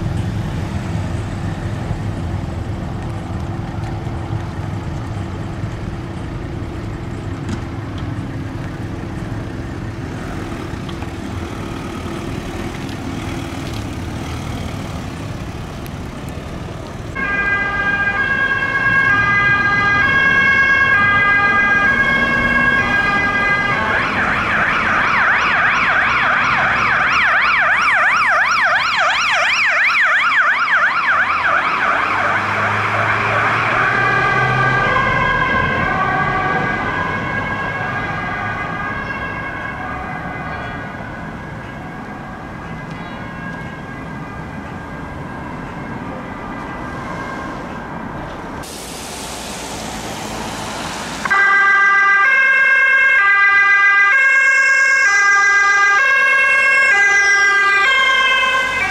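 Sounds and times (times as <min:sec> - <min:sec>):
ambulance siren: 0:16.5 - 0:58.9
stepped alternating siren: 0:17.1 - 0:58.9.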